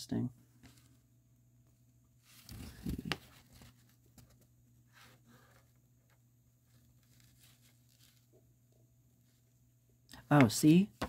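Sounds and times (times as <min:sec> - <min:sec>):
paper rustling and crinkling: 0:02.2 - 0:04.5, 0:06.7 - 0:08.3.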